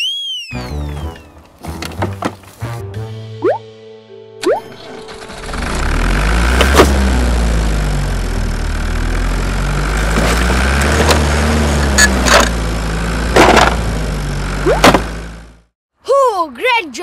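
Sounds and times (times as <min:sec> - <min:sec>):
vehicle motor droning: 0:05.0 - 0:15.7.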